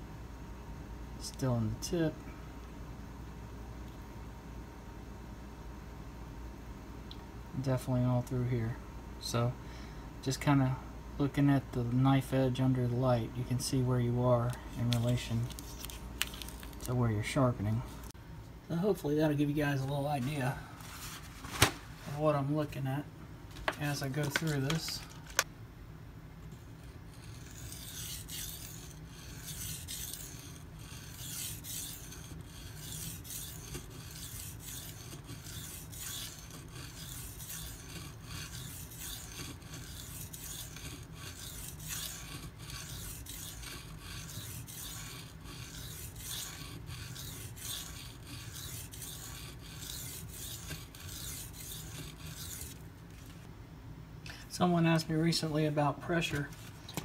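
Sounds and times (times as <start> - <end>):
knife scraping on whetstone: 26.6 - 53.4.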